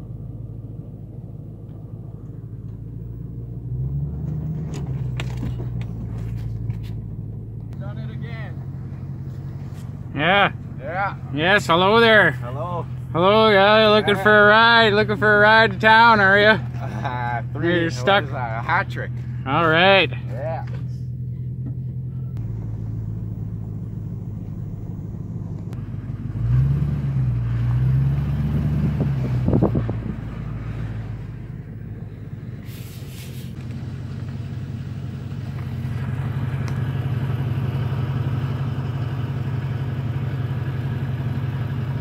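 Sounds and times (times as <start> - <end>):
truck engine running: 0.0 - 42.0.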